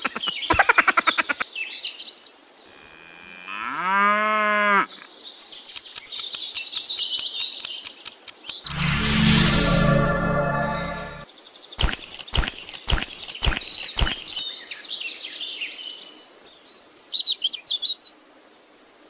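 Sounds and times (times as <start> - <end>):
bird-like chirping: 5.7 - 9.7
music: 8.7 - 11.3
steady high trill: 8.7 - 11.3.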